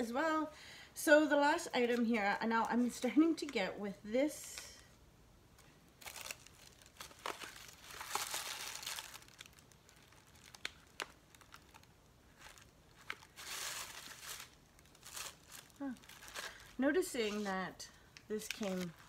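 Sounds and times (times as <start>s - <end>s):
packaging crinkling and tearing: 6.0s - 19.0s.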